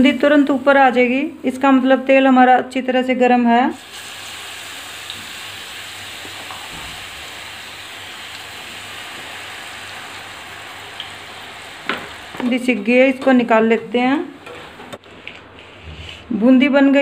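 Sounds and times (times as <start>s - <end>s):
batter sizzling in hot oil: 3.7s - 13.2s.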